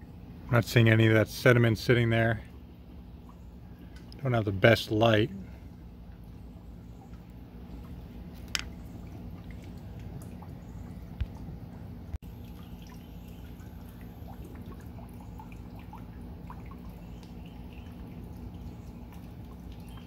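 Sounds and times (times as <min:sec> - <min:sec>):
steady low hum: 0:00.0 - 0:20.0
water dripping: 0:06.0 - 0:20.0.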